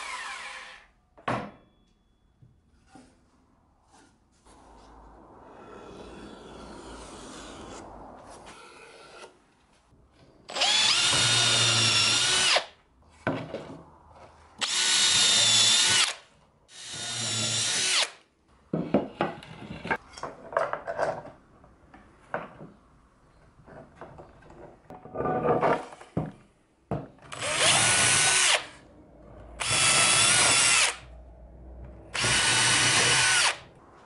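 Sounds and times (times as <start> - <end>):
electric drill boring into wood: 10.5 - 12.7, 14.6 - 18.1, 27.3 - 28.7, 29.6 - 31.0, 32.2 - 33.6.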